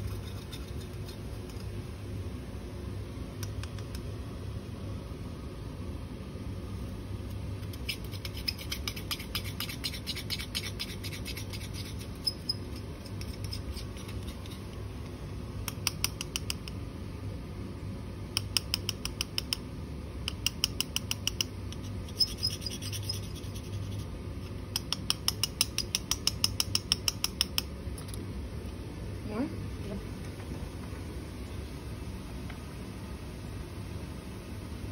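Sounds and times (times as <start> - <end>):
spatula tapping on glass beaker: 18.4 - 19.6, 20.3 - 21.5, 24.8 - 27.7.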